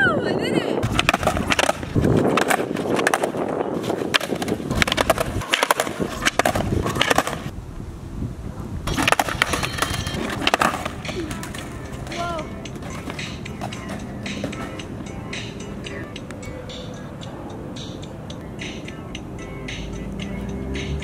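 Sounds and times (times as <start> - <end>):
skateboard rolling on asphalt: 0.7 - 21.0
skateboard clacking on pavement: 0.8 - 7.5, 8.9 - 16.8.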